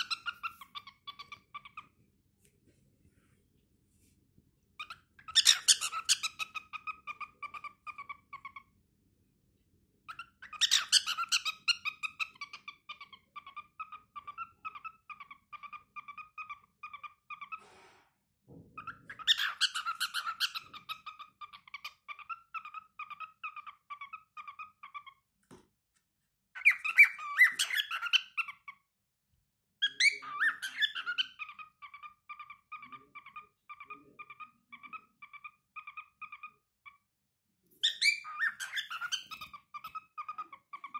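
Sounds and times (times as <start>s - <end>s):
cockatiel singing: 0.0s - 2.0s, 4.8s - 8.7s, 10.0s - 17.6s, 18.8s - 25.2s, 26.6s - 28.9s, 29.8s - 37.0s, 37.7s - 40.9s.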